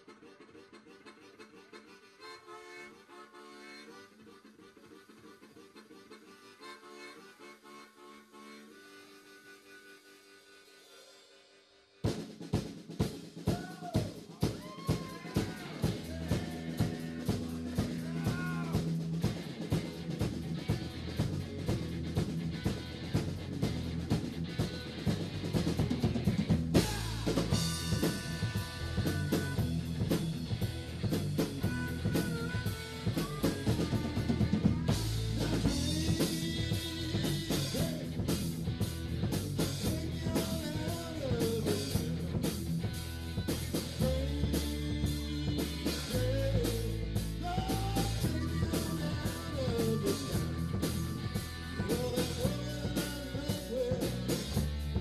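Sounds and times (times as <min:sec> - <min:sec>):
harmonica: 0:00.0 - 0:55.0
live rock band playing: 0:12.0 - 0:55.0.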